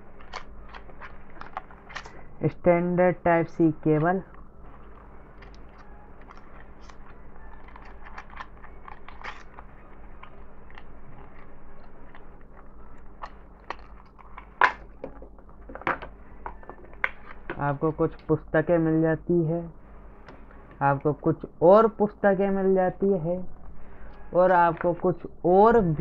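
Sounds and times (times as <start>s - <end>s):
cardboard packaging rustling: 0.0s - 2.4s, 4.1s - 15.8s
cardboard snapping: 0.3s - 2.2s.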